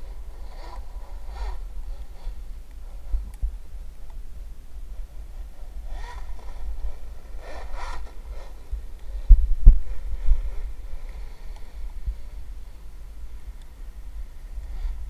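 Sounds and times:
steady low rumble: 0:00.0 - 0:15.0
electric motor whining: 0:05.0 - 0:09.3
heavy low thumps: 0:09.2 - 0:10.5.

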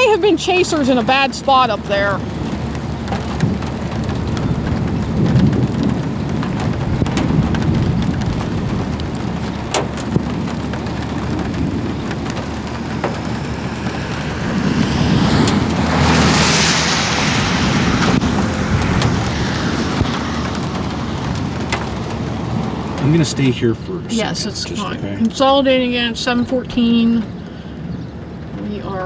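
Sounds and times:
low rumble: 0:00.0 - 0:25.3
steady rain: 0:00.0 - 0:29.0
rushing hiss: 0:14.2 - 0:19.9.

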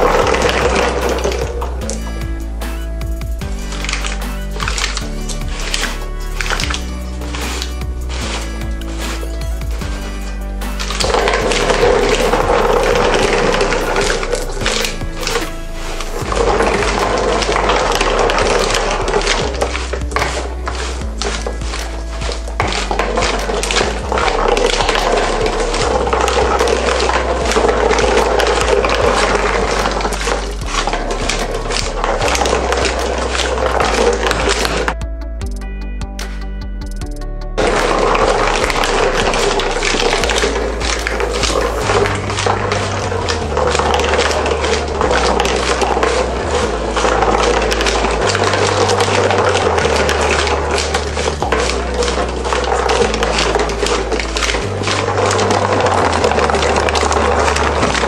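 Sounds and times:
hand-cranked cardboard escalator: 0:00.0 - 0:35.0, 0:37.6 - 0:58.0
marbles rolling on cardboard tracks: 0:37.6 - 0:58.0.

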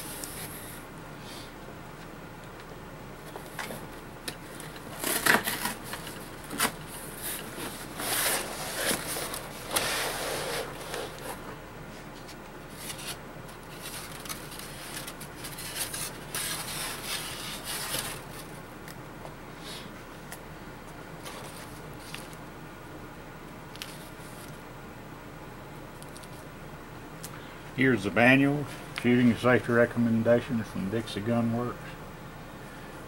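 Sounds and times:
cardboard and foam scraping: 0:04.9 - 0:11.5.

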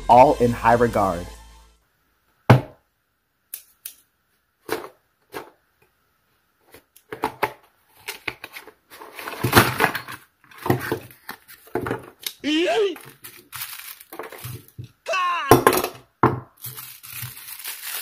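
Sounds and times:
cardboard scraping and rustling: 0:08.0 - 0:12.2.

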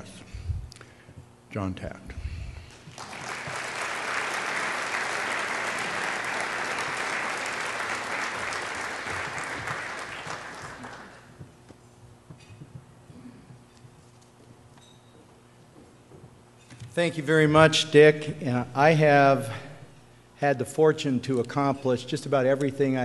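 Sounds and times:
audience applauding: 0:02.7 - 0:11.4.

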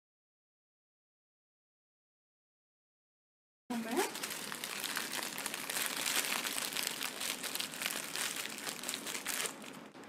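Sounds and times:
packaging crinkling: 0:03.7 - 0:10.0.

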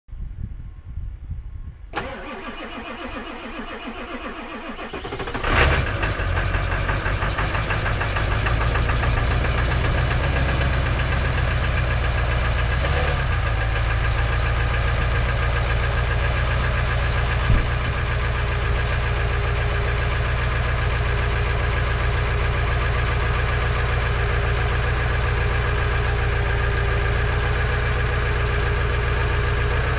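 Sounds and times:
starter motor cranking: 0:02.0 - 0:06.0
diesel engine idling: 0:02.0 - 0:29.9.

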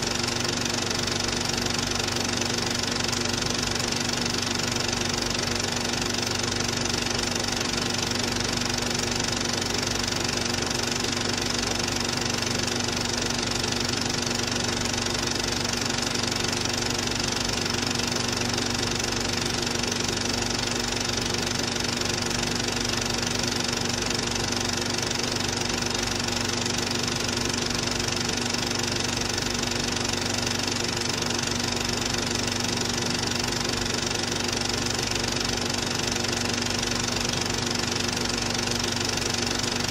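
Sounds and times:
projector mechanical clatter: 0:00.0 - 0:39.9
projector motor hum: 0:00.0 - 0:39.9.

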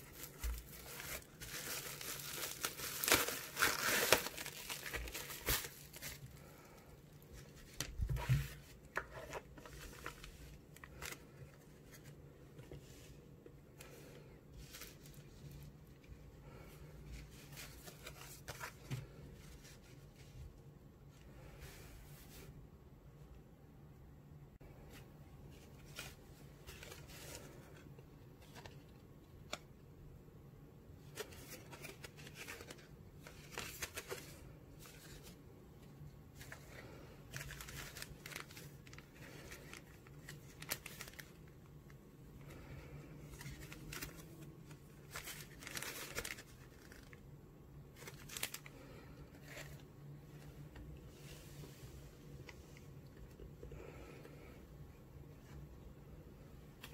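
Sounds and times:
plastic packaging crinkling: 0:00.0 - 0:06.5, 0:37.3 - 0:41.5, 0:43.3 - 0:47.2, 0:47.9 - 0:48.8.

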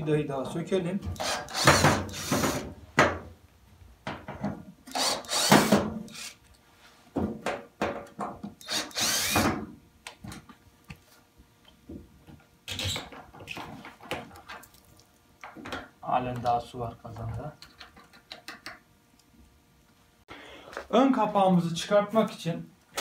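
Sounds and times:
cordless drill whirring: 0:01.2 - 0:02.6, 0:04.9 - 0:06.4, 0:08.6 - 0:09.5.

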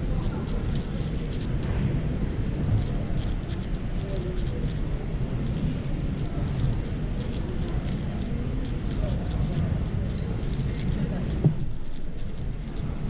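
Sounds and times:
low hall hum: 0:00.0 - 0:13.0
murmur of distant voices: 0:00.0 - 0:13.0
plastic puzzle cube clicking: 0:00.2 - 0:01.5, 0:02.8 - 0:04.8, 0:06.2 - 0:12.8.

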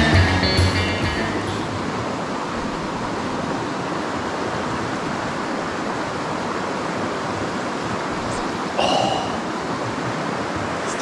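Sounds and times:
river water rushing: 0:00.9 - 0:11.0.

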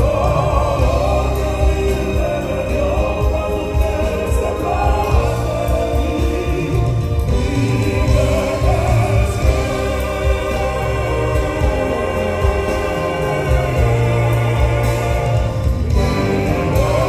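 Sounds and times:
live band playing: 0:00.0 - 0:17.0
male vocal group singing: 0:00.0 - 0:17.0.

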